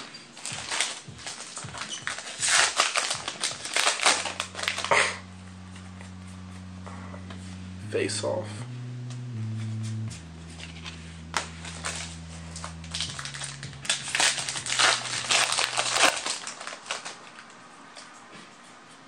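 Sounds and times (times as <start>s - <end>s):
cards rustling: 0.0s - 5.1s, 10.5s - 17.6s
foil wrapper crinkling: 0.0s - 5.2s, 10.8s - 17.6s.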